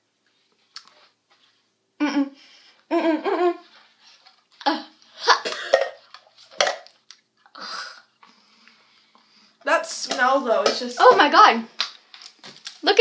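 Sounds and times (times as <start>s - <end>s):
women laughing: 2.9s - 3.7s.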